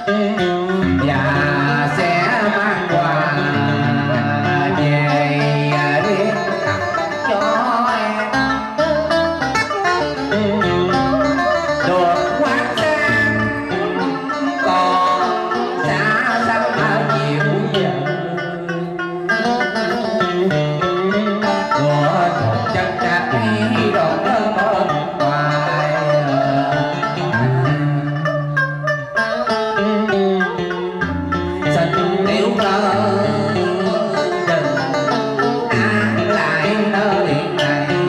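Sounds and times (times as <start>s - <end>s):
plucked strings melody: 0.0s - 38.0s
low bass line: 8.4s - 15.1s.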